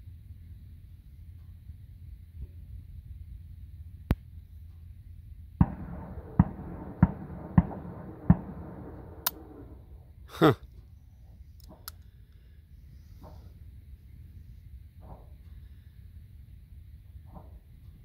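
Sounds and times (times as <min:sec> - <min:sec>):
gunshots with rolling echo: 0:05.6 - 0:10.1.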